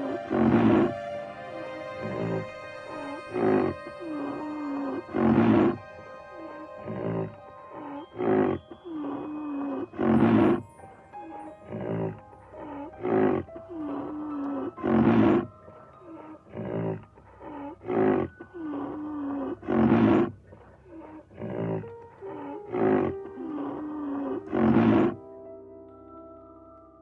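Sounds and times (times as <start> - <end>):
rhinoceros bellowing: 0.0 - 1.2, 2.0 - 10.6, 11.2 - 25.2
rhinoceros moaning: 0.0 - 1.2, 2.0 - 25.2.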